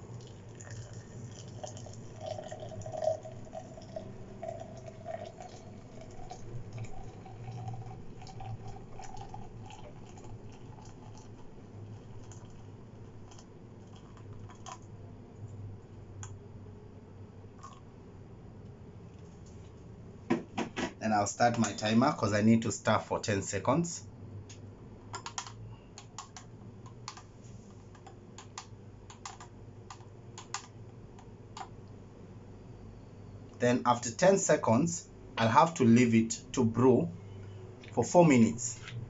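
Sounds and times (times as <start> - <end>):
hot water pouring into glass: 0.0 - 14.8, 17.6 - 17.8.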